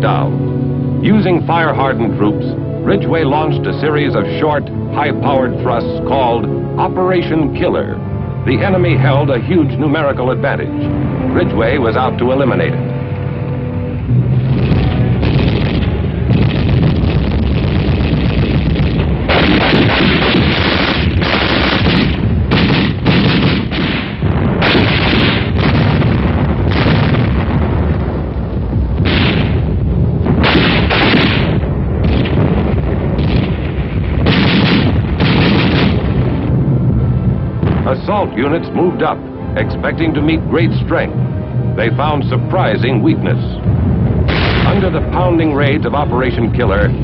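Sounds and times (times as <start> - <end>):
continuous heavy rumble: 0.0 - 47.0
artillery fire and gunshots: 14.4 - 38.2, 44.0 - 47.0.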